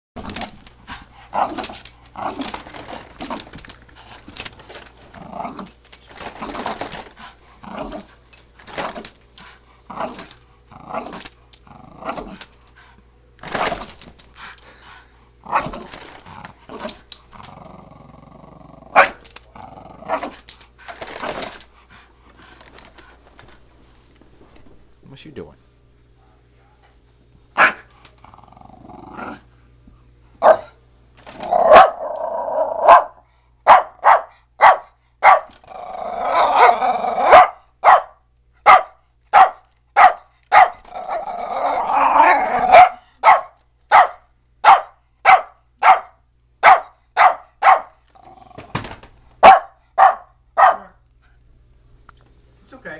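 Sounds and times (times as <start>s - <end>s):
dog growling: 0.2s - 12.6s, 13.4s - 21.7s, 27.7s - 29.5s, 31.3s - 33.2s, 35.5s - 37.5s, 40.8s - 43.0s, 48.1s - 49.0s
dog barking sharply: 27.6s - 27.9s, 30.4s - 30.8s, 32.8s - 35.5s, 37.3s - 40.8s, 42.7s - 48.0s, 49.4s - 51.0s.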